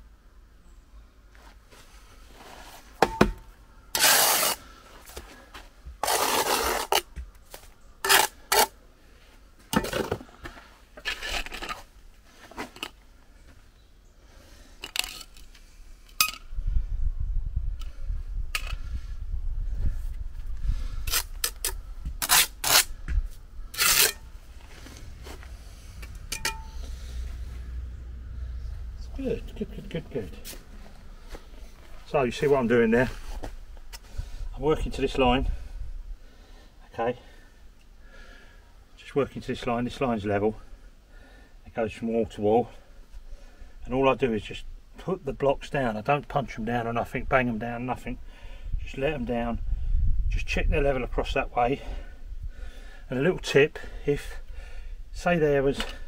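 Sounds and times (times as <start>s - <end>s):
trowel scraping concrete blocks: 4.0s - 4.6s, 6.0s - 7.2s, 8.0s - 8.8s, 23.7s - 24.3s.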